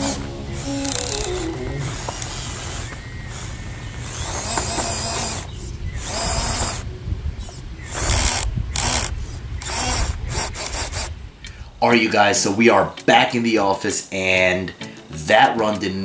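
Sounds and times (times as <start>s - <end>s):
toy truck drivetrain running: 0.0s - 6.9s, 7.9s - 11.1s
ratcheting clicking: 0.6s - 1.4s, 7.5s - 11.6s.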